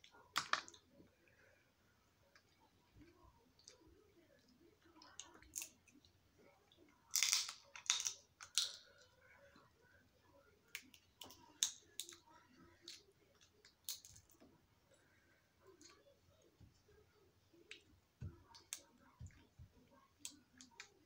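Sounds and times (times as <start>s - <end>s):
crab shells cracking: 7.1s - 8.9s, 12.9s - 14.4s.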